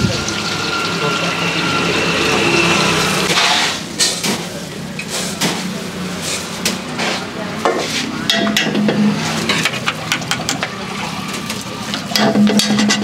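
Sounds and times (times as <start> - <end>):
hot oil sizzling in a wok: 0.0 - 3.8
steel utensils clattering: 8.2 - 10.6, 12.1 - 13.0.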